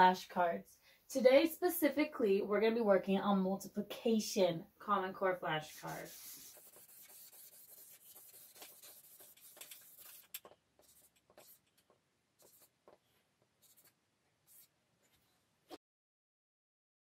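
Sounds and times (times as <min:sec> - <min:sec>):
marker scratching on paper: 0:05.6 - 0:15.8.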